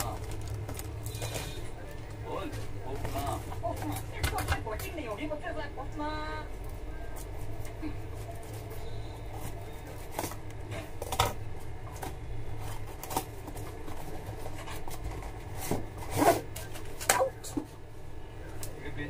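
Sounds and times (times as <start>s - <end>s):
cardboard flaps rustling and scraping: 11.9s - 17.1s.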